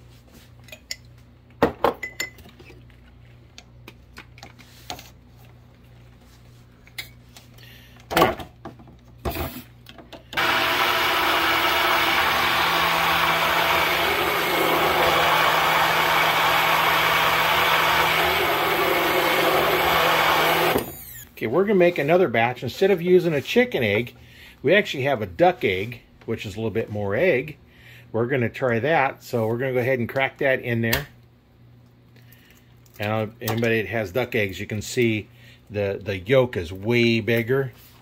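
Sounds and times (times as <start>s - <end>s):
stick blender running: 10.4s - 21.3s.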